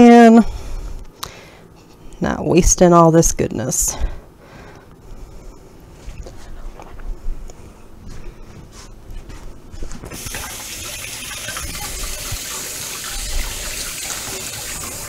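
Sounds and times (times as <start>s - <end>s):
water pouring into a sink: 10.1s - 15.0s.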